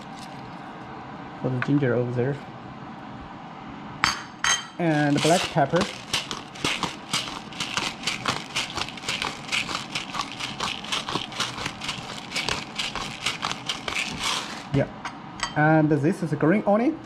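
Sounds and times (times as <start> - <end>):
pepper grinder clicking: 4.9 - 14.8.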